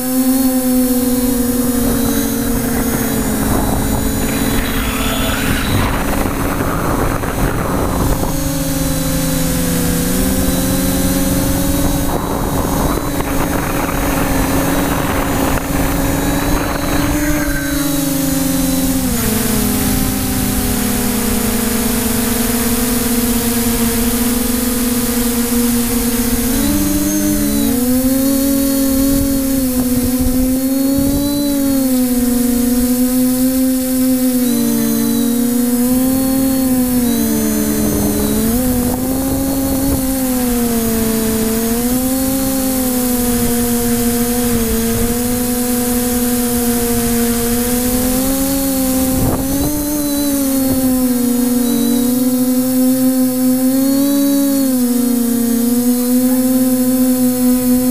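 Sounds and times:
drone propellers humming: 0.0s - 57.9s.

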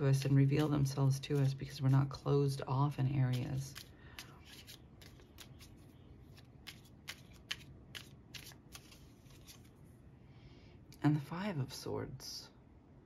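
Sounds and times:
cards being shuffled: 3.3s - 9.8s.

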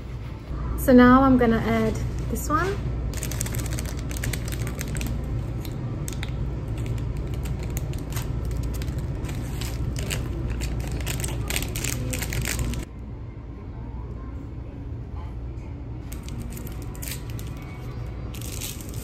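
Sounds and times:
steady low hum: 0.0s - 19.0s
plastic sachets crinkling: 3.1s - 12.9s, 16.1s - 19.0s.

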